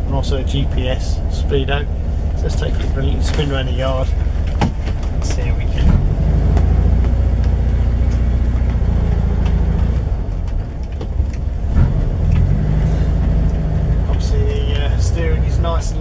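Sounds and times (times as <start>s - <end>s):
van engine running: 0.0s - 16.0s.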